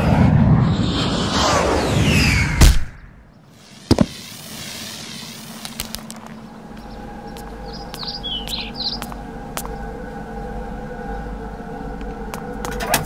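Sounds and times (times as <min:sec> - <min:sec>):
high warbling siren-like wail: 0:00.0 - 0:03.2, 0:06.4 - 0:13.0
steady hum: 0:00.0 - 0:13.0
cartoon crash: 0:00.1 - 0:03.2.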